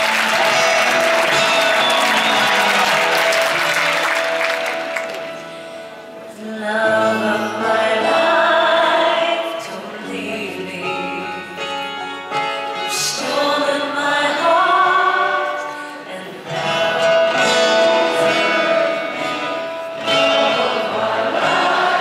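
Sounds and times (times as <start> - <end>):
audience applause: 0.0 - 5.7
woman singing live: 6.3 - 22.0
strummed acoustic guitar: 16.3 - 22.0.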